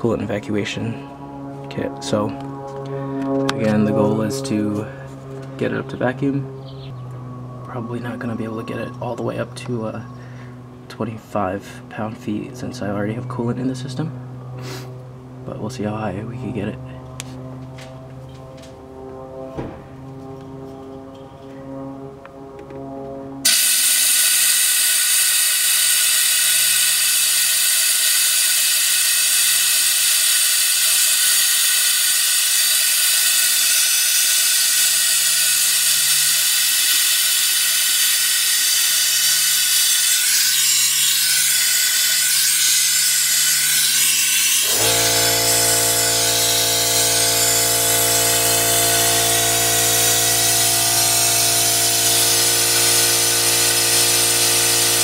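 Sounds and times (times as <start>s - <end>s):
low machine hum: 0.0s - 55.0s
compressed air hissing: 14.6s - 14.9s, 23.5s - 55.0s.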